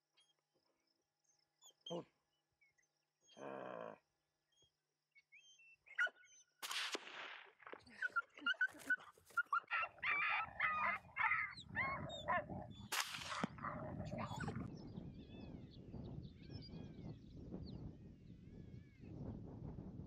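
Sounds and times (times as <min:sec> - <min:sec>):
coyotes yipping and howling: 0:04.5 - 0:06.6, 0:07.8 - 0:15.7
sharp cracks with rush: 0:06.6 - 0:07.5, 0:12.9 - 0:13.6.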